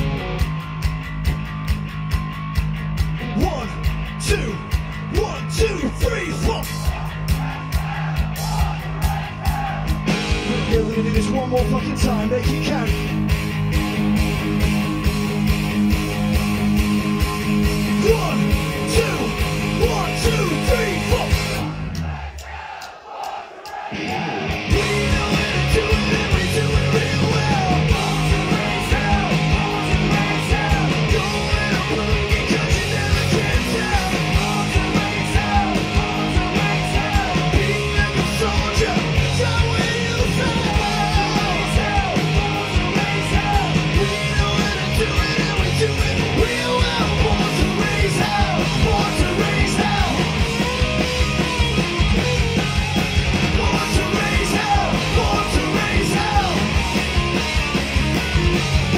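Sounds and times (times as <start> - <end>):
bass guitar: 0.0 - 22.2, 24.0 - 58.9
distorted electric guitars: 0.0 - 22.3, 23.8 - 58.9
drums: 0.0 - 58.9
person singing lead vocal: 17.9 - 21.7, 23.9 - 50.7, 53.4 - 57.0.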